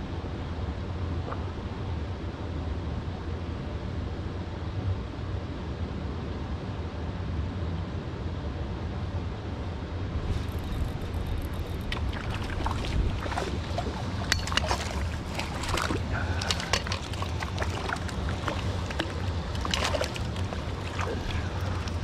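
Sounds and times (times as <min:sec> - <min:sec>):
wind rumble on microphone: 0:09.0 - 0:22.0
water splashing: 0:10.3 - 0:22.0.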